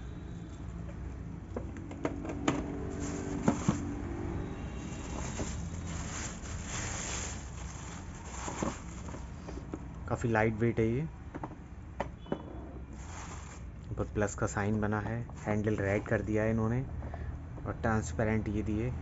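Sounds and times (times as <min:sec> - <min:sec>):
plastic wrapping crinkling: 0:02.8 - 0:04.0, 0:04.7 - 0:09.6, 0:13.0 - 0:13.7, 0:14.7 - 0:16.3.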